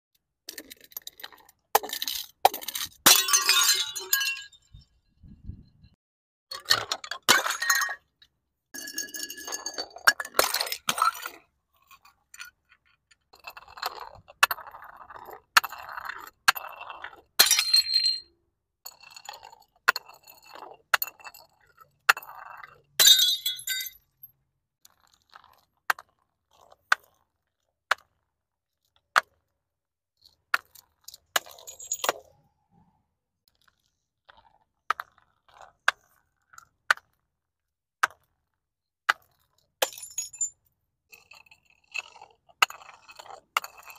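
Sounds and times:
glass breaking: 2.8s - 4.6s, 23.0s - 24.0s
glass bottles clinking down steps: 2.8s - 4.9s, 6.6s - 8.1s, 8.8s - 11.2s, 17.4s - 18.3s, 23.0s - 24.0s, 39.8s - 40.5s.

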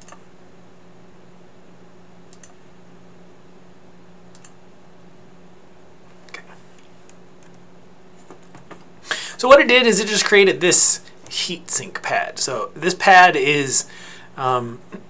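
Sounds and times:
computer mouse clicks: 0.0s - 0.2s, 2.3s - 2.6s, 4.3s - 4.6s
faint steady hum: 0.0s - 15.0s.

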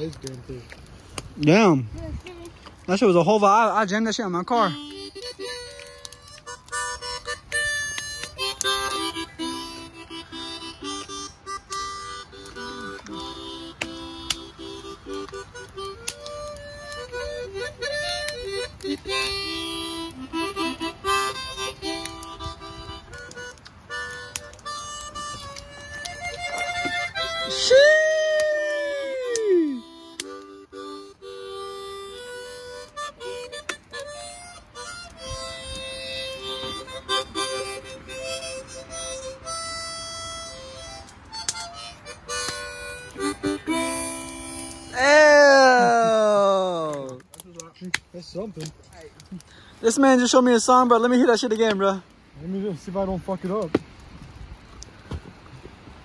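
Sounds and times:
harmonica melody: 2.9s - 47.0s.

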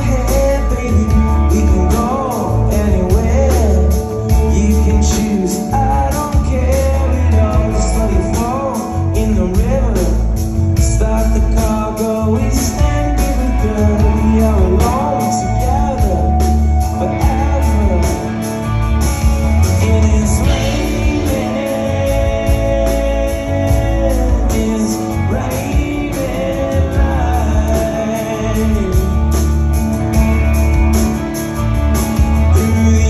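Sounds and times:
acoustic and electric guitars: 0.0s - 33.0s
drums: 0.0s - 33.0s
man singing: 0.0s - 33.0s.

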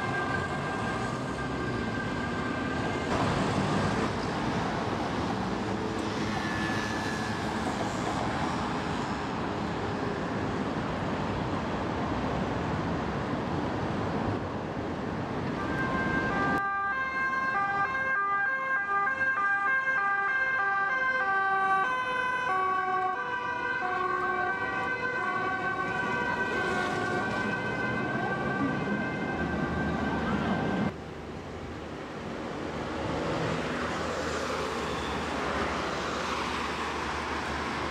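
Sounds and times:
steady siren tone: 0.0s - 3.0s, 15.6s - 30.9s
traffic noise: 0.0s - 37.9s.

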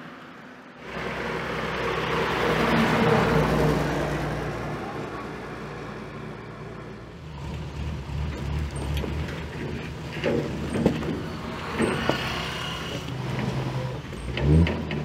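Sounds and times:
diesel truck engine running: 0.8s - 15.0s
clunks: 7.4s - 15.0s.

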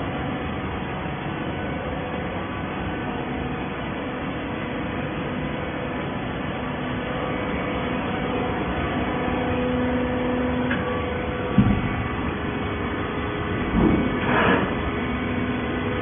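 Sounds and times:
baler mechanical hum: 0.0s - 16.0s
short low thump: 11.5s - 12.0s.

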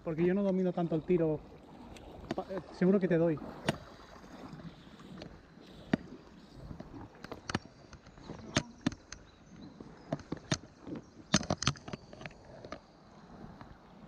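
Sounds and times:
fishing gear clicks and taps: 0.3s - 0.7s, 5.1s - 12.9s.

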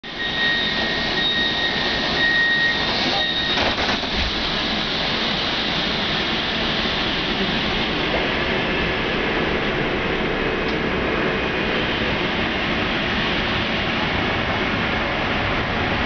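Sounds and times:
tram running noise: 0.0s - 16.0s
door-closing warning beep: 0.1s - 4.1s
sliding doors shutting: 0.2s - 4.7s.

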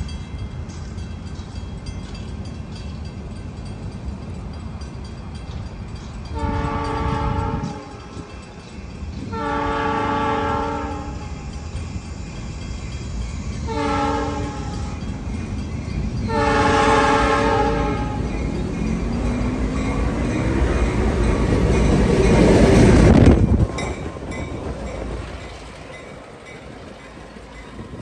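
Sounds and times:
low rumble of train: 0.0s - 28.0s
train air horn: 6.4s - 8.3s, 9.3s - 11.3s, 13.7s - 14.9s, 16.3s - 18.2s.

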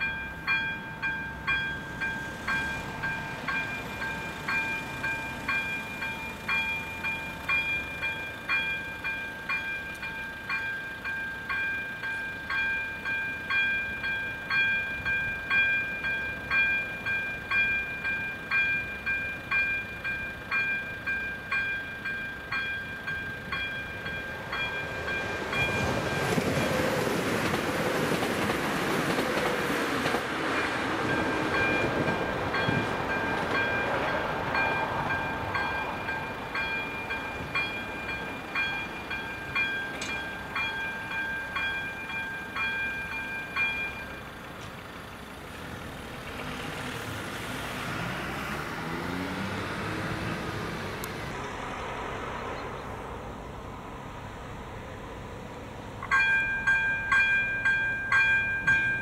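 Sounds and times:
train wheel and running noise: 0.0s - 47.9s, 50.5s - 59.0s
level crossing bell ringing: 32.5s - 44.5s, 56.0s - 59.0s.

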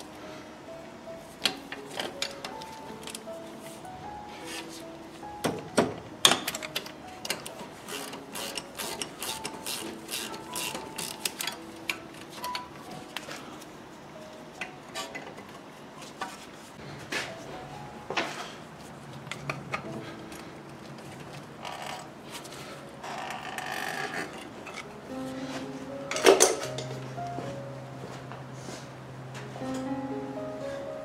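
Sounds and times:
quiet background music: 0.0s - 31.0s.

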